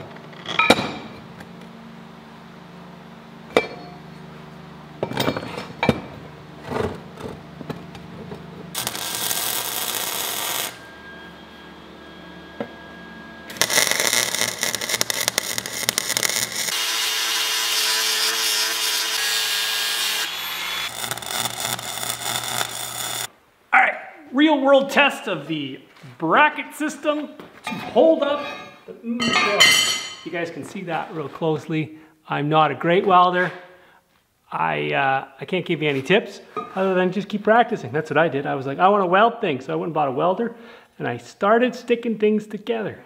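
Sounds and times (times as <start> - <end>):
arc welding: 8.7 - 11.0, 13.5 - 23.3
angle grinding: 8.8 - 23.3.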